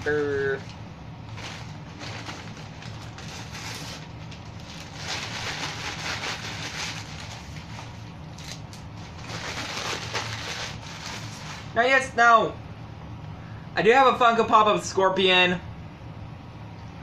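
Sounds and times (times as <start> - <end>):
packing paper rustling: 0.0 - 11.9.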